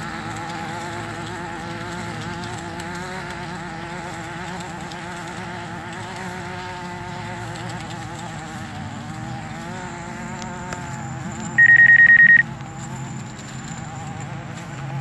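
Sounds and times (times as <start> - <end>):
drone propellers whining: 10.0 - 12.4
high electronic beeps: 11.6 - 12.4.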